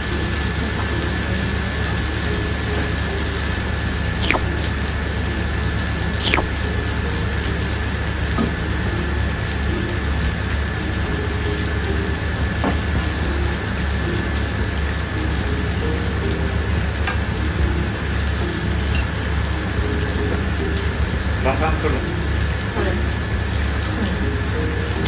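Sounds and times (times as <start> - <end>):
meat sizzling on grill: 0.1 - 25.0
utensil clicks: 4.2 - 4.6, 6.2 - 6.6.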